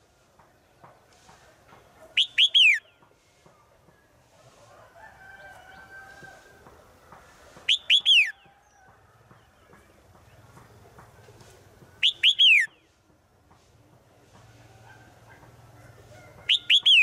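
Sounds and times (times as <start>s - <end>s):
bird calling falling notes: 2.2s - 3.0s, 7.6s - 8.4s, 12.0s - 13.0s, 16.5s - 17.0s
faint long held bird call: 2.2s - 3.5s, 7.2s - 10.0s, 11.4s - 13.0s, 16.1s - 17.0s.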